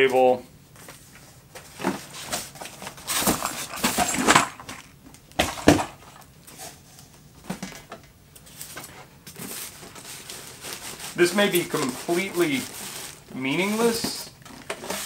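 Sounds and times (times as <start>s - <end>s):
plastic wrap crinkling: 8.5s - 15.0s
cardboard and foam scraping: 9.4s - 15.0s.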